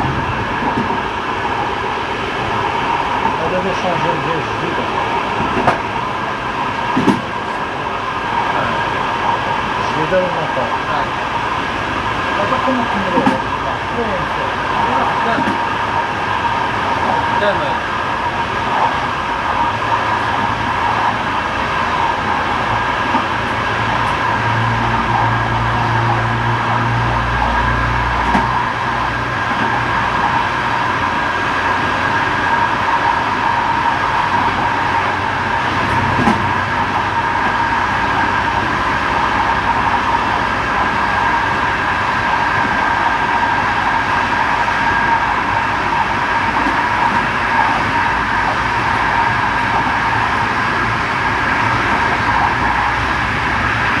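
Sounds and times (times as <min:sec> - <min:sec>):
high whine: 0:00.0 - 0:54.0
train rolling on track: 0:00.0 - 0:54.0.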